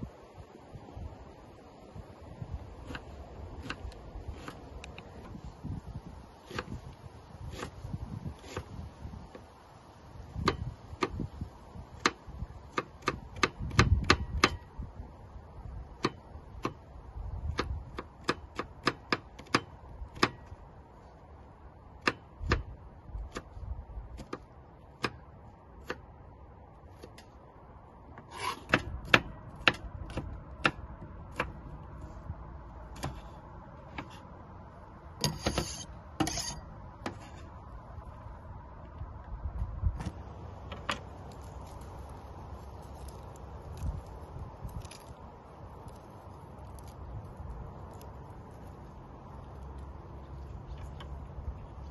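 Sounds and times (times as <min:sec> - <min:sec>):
knife scraping into bowl: 0:35.2 - 0:36.6.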